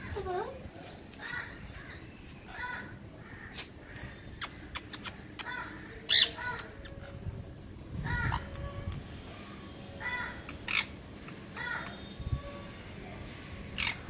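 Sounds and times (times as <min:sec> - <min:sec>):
parrot squawking harshly: 0:05.4 - 0:06.7, 0:13.8 - 0:14.0.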